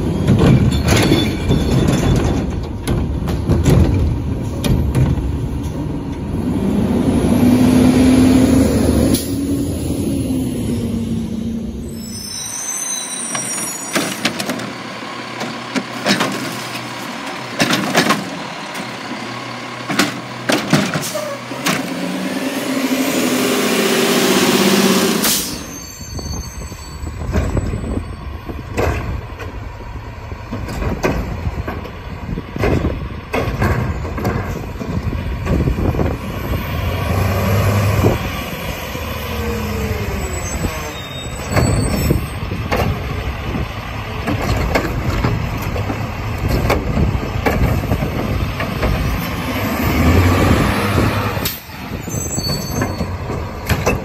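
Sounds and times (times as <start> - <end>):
trash cart knocks and bangs: 0.0 - 5.8, 15.4 - 16.7, 17.5 - 18.9, 19.8 - 22.0, 28.6 - 29.6, 30.5 - 36.2, 44.2 - 49.3, 52.4 - 54.0
garbage truck engine revving: 0.0 - 12.1, 13.2 - 25.8, 28.5 - 54.0.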